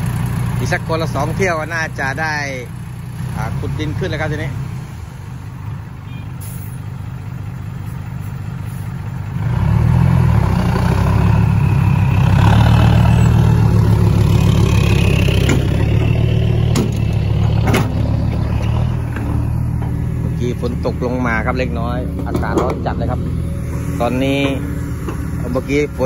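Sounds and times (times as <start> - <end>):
excavator engine working: 0.0 - 6.2, 6.8 - 26.0
dump truck diesel engine: 0.0 - 26.0
sharp knocks: 15.4 - 18.1.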